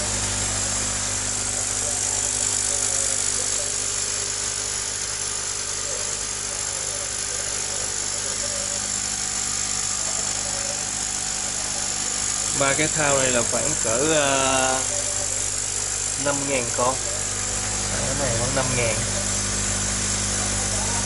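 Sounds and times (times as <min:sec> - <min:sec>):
electric air pump humming: 0:00.0 - 0:21.0.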